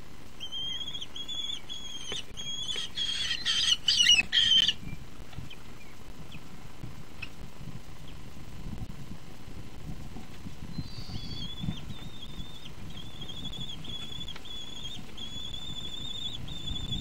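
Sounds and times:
young kestrels calling: 0:00.4 - 0:06.5, 0:10.6 - 0:17.0.

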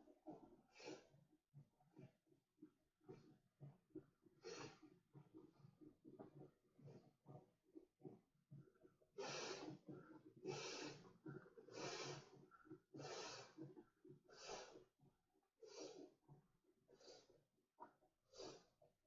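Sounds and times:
man breathing into a valve: 0:04.4 - 0:04.8, 0:09.2 - 0:11.0, 0:11.6 - 0:13.7, 0:14.3 - 0:14.8.

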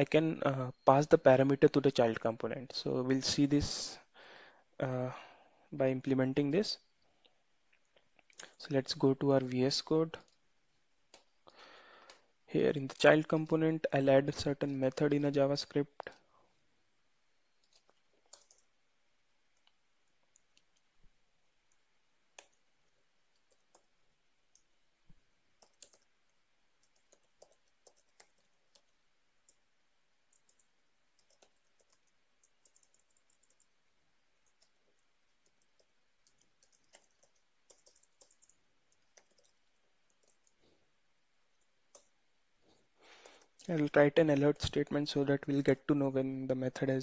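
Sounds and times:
computer keyboard typing: 0:17.6 - 0:18.8, 0:21.6 - 0:24.8, 0:25.5 - 0:40.6, 0:41.6 - 0:42.1.

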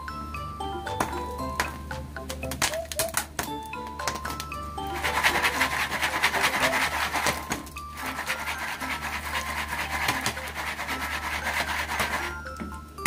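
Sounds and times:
popcorn rattling in foil pan: 0:05.0 - 0:12.4.

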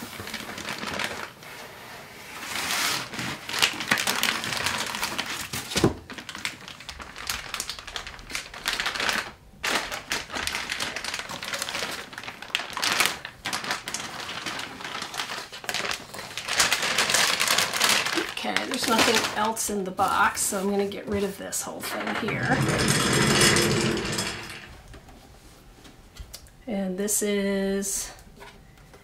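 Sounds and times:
plastic bag crinkling: 0:00.0 - 0:01.4, 0:02.4 - 0:20.7.

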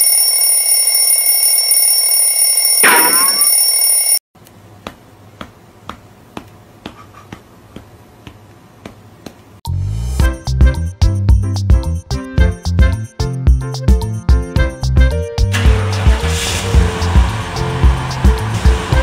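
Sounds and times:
electronic alarm clock ringing: 0:00.0 - 0:04.2
faint regular taps: 0:04.4 - 0:09.6.

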